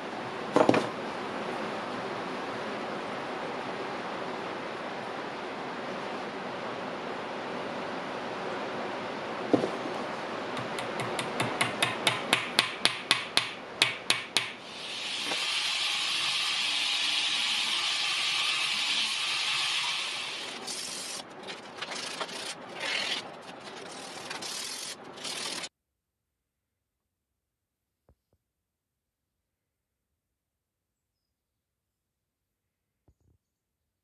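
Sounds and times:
belt grinder hissing: 14.6 - 21.2.

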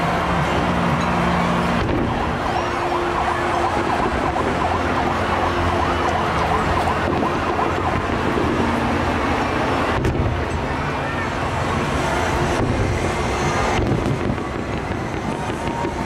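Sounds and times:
fireworks din and rumble: 0.0 - 16.0
fireworks whistling: 12.3 - 16.0.

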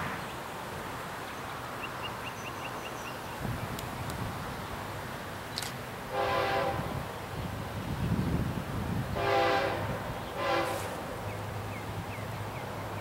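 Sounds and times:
distant train horn: 6.1 - 7.0, 9.2 - 11.0.

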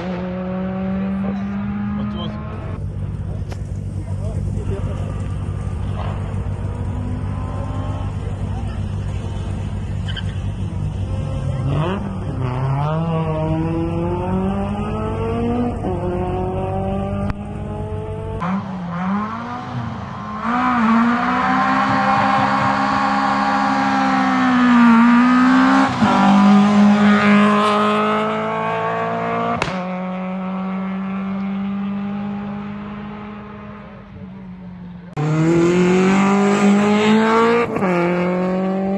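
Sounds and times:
rally car engine revving: 0.0 - 38.9
sharp crack: 4.6 - 6.8, 29.6 - 29.9.

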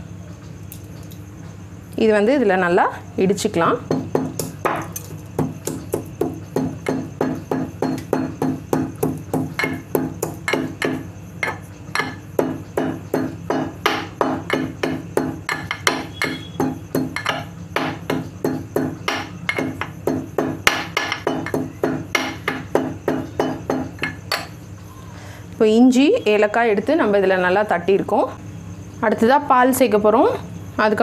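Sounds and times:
pestle pounding in metal mortar: 3.8 - 24.6.

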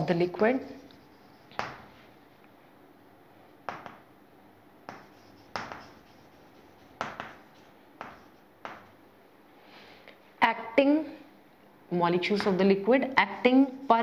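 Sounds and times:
chalk tapping and scratching: 0.0 - 2.1, 3.7 - 4.1, 4.8 - 9.0, 12.3 - 14.0.

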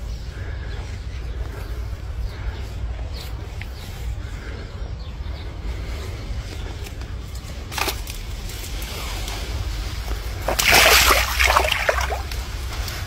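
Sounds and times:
steady low rumble: 0.0 - 10.5
water splashing: 10.4 - 12.5.

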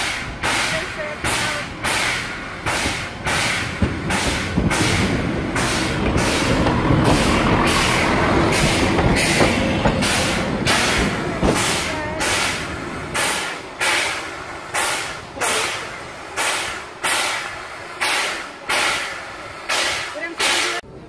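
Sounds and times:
steam locomotive chuffing: 0.0 - 20.8
low diesel rumble: 0.0 - 21.0.

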